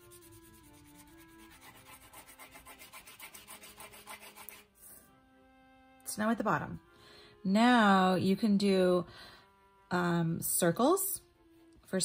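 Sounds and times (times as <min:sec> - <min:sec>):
crayon scribbling on paper: 0:00.0 - 0:04.7
faint background music: 0:00.0 - 0:12.0.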